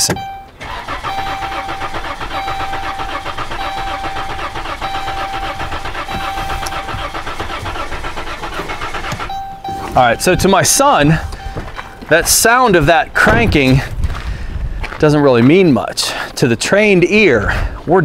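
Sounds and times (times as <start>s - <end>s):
engine starter cranking: 0.0s - 13.9s.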